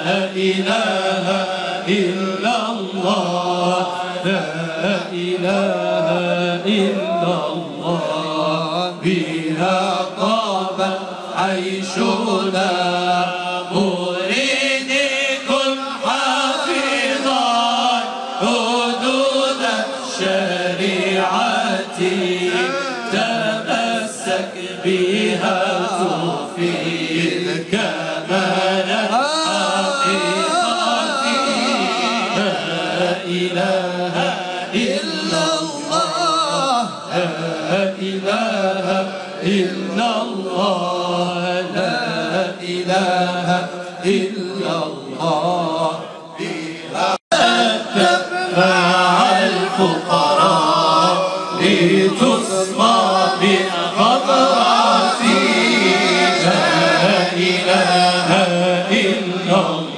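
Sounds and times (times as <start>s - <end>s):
voices chanting a hymn: 0.0s - 59.9s.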